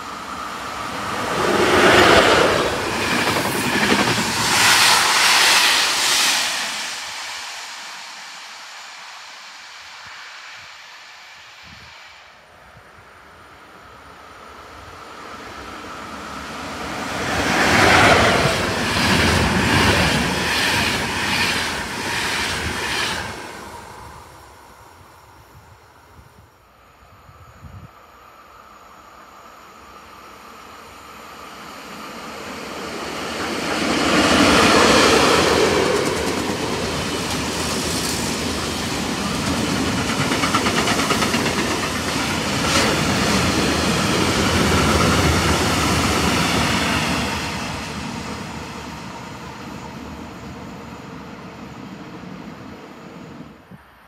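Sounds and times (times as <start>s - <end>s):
train wheels on rails: 0.0s - 12.4s, 14.5s - 25.3s, 30.0s - 53.5s
freight train passing: 0.0s - 54.0s.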